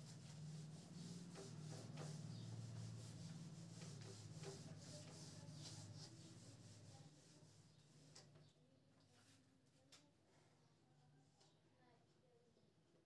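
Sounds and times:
whiteboard being wiped: 0.0s - 8.3s.

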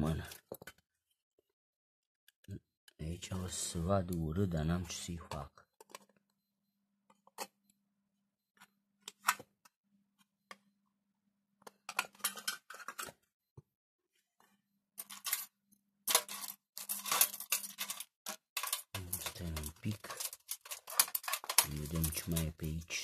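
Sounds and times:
metal tools rattling in tin box: 15.0s - 15.5s, 16.1s - 22.9s.

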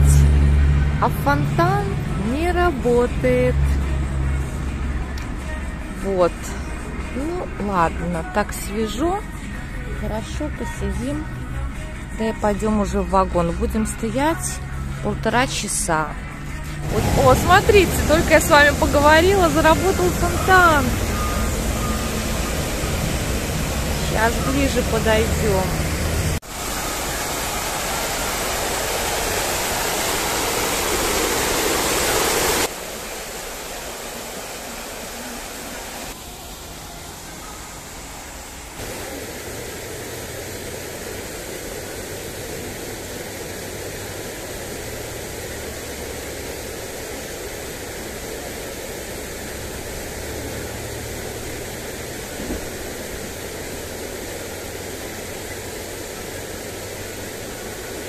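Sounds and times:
fountain water splashing: 16.8s - 58.0s.

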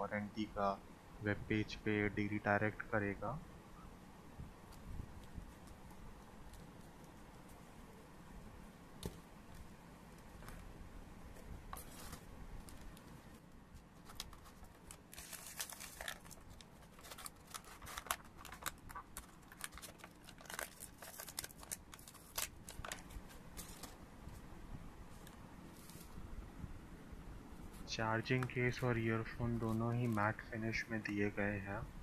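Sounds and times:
plastic packaging crinkling: 14.0s - 24.0s.

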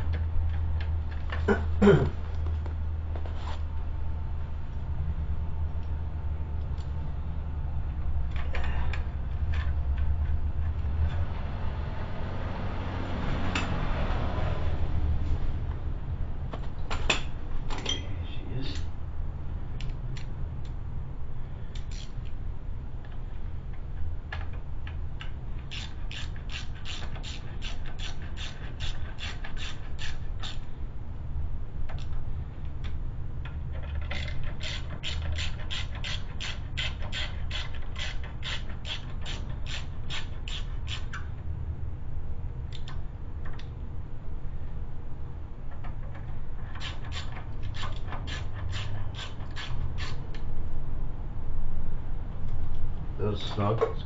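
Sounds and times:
low hum: 0.0s - 25.7s
socket ratchet clicking: 21.8s - 22.4s, 24.4s - 30.7s, 32.8s - 41.3s, 45.7s - 50.5s.

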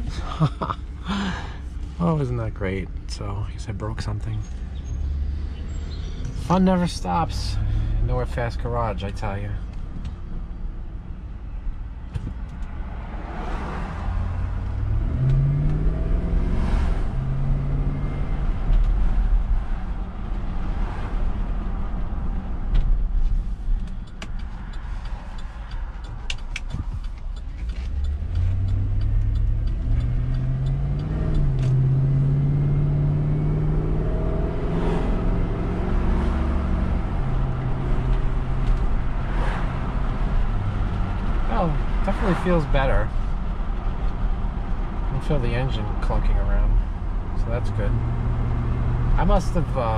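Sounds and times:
road rumble: 0.0s - 49.9s
car engine accelerating: 12.4s - 49.9s.

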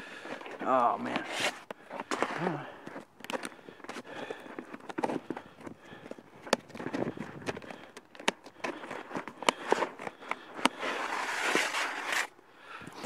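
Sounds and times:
scissors snipping roofing sheet: 0.3s - 12.4s.

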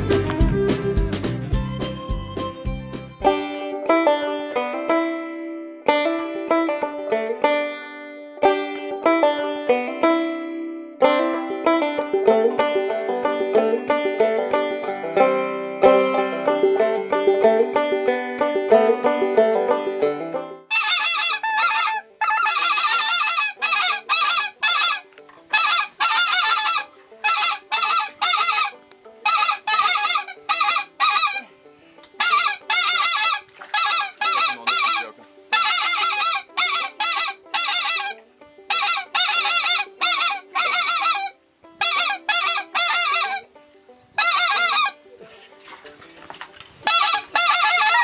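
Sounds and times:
goose call honks: 20.7s - 31.5s, 32.2s - 43.5s, 44.2s - 45.0s, 46.8s - 48.0s.

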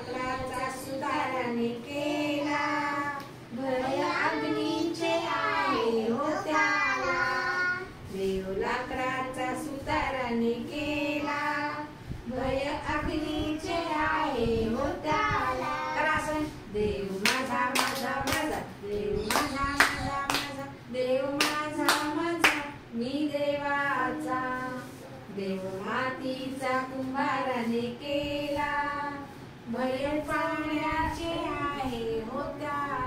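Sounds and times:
woman and children singing: 0.0s - 33.0s
hand claps: 17.2s - 18.6s, 19.3s - 20.6s, 21.4s - 22.7s.

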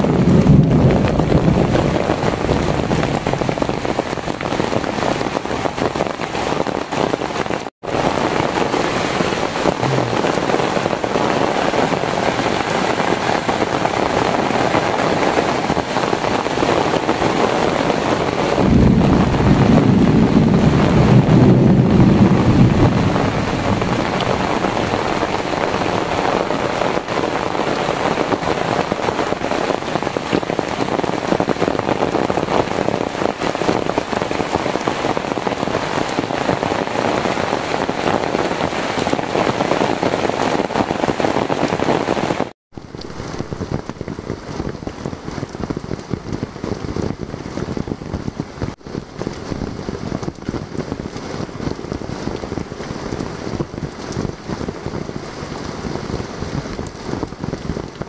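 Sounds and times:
heavy rain on foliage: 0.0s - 58.0s
low rumble: 9.7s - 11.2s, 18.6s - 26.3s.

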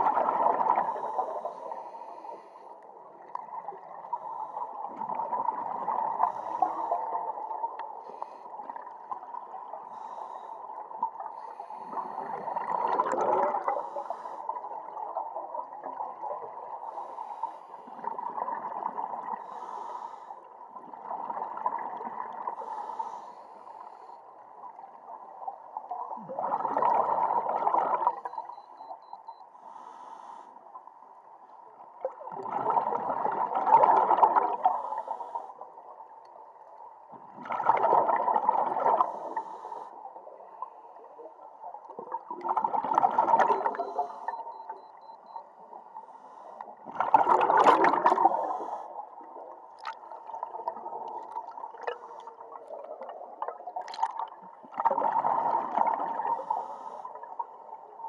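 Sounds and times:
exhaled bubbles bubbling: 0.0s - 1.6s, 3.1s - 10.2s, 10.8s - 17.0s, 17.9s - 19.6s, 20.8s - 22.8s, 25.8s - 28.6s, 32.0s - 34.8s, 37.1s - 39.5s, 40.3s - 45.2s, 46.7s - 56.5s.

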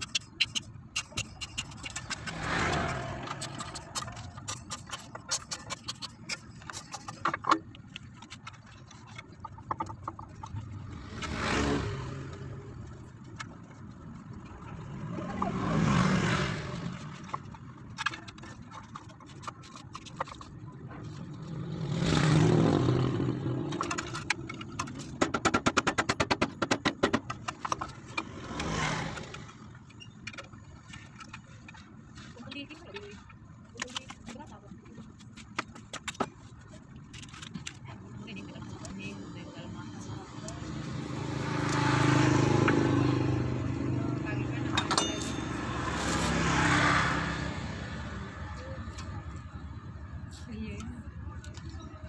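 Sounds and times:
hand tools clicking and scraping: 0.0s - 52.0s
passing vehicle engine: 1.6s - 4.7s, 10.4s - 18.5s, 20.7s - 25.2s, 28.0s - 29.8s, 38.3s - 50.2s.

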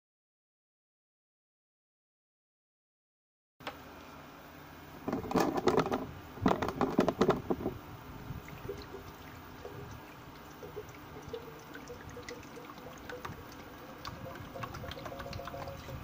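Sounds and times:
water pouring into plastic reservoir: 5.1s - 7.8s, 8.4s - 16.0s.

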